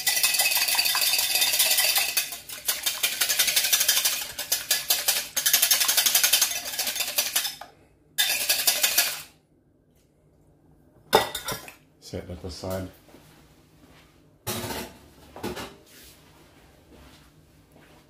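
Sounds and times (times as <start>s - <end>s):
whisk beating egg in glass bowl: 0.0s - 7.6s, 8.2s - 9.3s.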